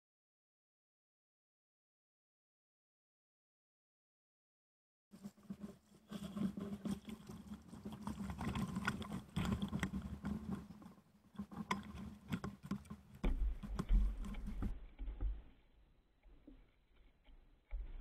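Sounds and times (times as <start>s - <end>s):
clicks and knocks through hull: 5.2s - 18.0s.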